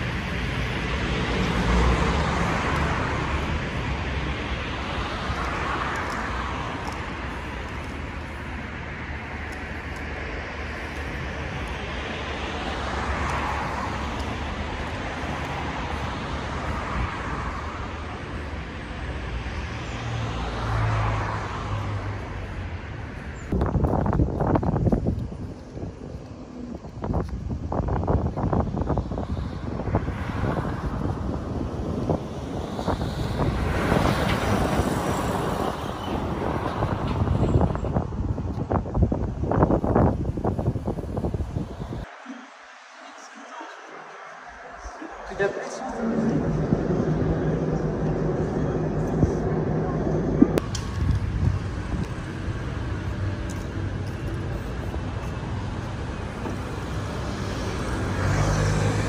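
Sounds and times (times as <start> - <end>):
cars passing: 0.0 - 59.0
wind buffeting microphone: 21.7 - 42.9, 43.6 - 59.0
low engine hum: 44.8 - 59.0.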